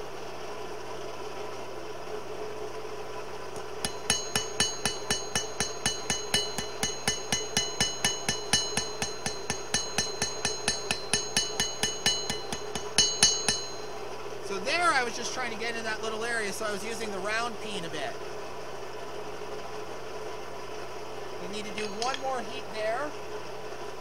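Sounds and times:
steady hum: 0.0 - 24.0
hammer ringing on anvil: 3.8 - 15.1, 21.4 - 22.7.

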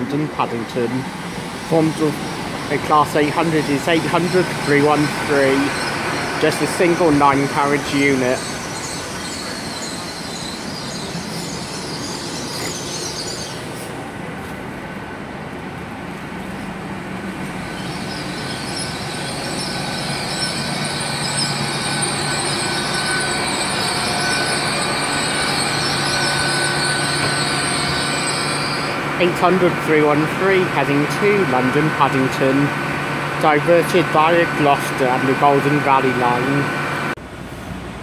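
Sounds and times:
train running hum: 0.0 - 38.0
train wheel and brake squeal: 1.2 - 14.0, 17.4 - 32.7.

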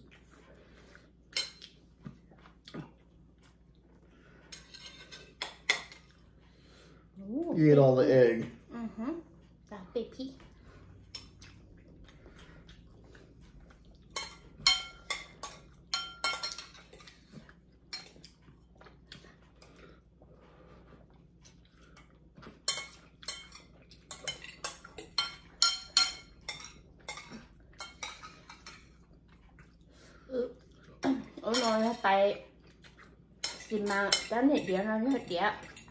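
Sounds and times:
cutlery clinking on ceramic bowls: 14.1 - 17.2, 22.5 - 29.0, 31.4 - 32.1, 33.4 - 35.9.

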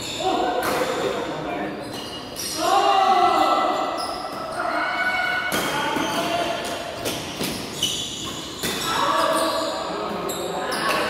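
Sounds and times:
sneakers squeaking on court: 1.7 - 2.6, 3.8 - 4.6, 5.5 - 11.0.

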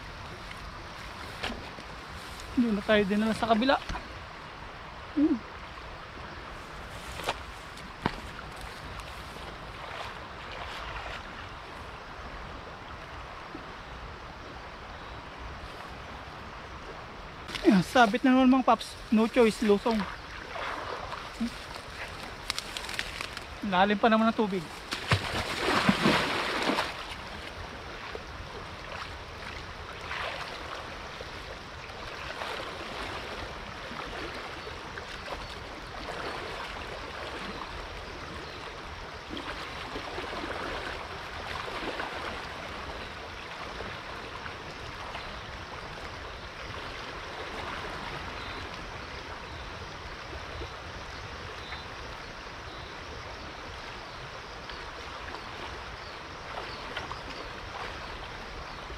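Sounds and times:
river water flowing: 0.0 - 58.9
person wading through water: 6.4 - 12.0, 17.5 - 23.7, 24.4 - 50.6, 53.6 - 58.9.

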